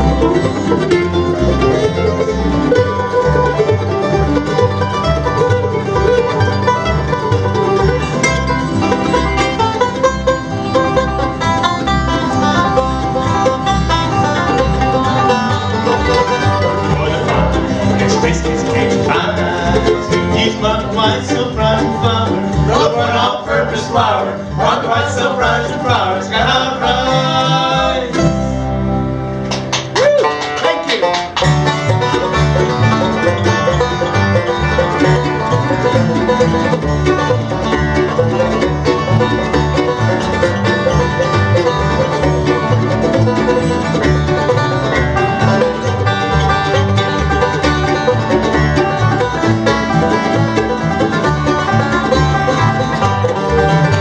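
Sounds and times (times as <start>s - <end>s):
bluegrass band playing: 0.0s - 54.0s.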